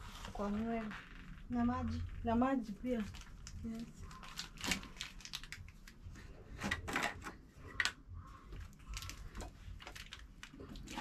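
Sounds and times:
small objects clicking and rustling: 8.8 - 11.0.

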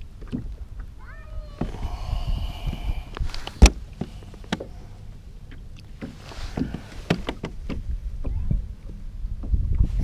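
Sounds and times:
knocks and clicks on plastic kayak: 6.0 - 8.4.

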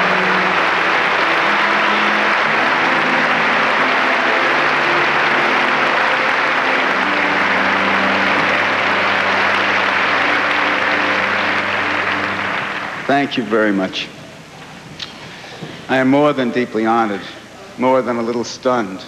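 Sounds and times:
low sustained notes: 0.0 - 14.1
audience applause: 0.0 - 14.2.

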